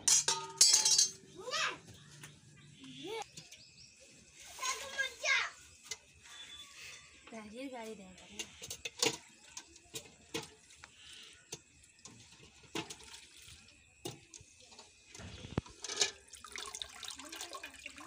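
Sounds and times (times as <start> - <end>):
water splashing in bucket: 15.6 - 18.0.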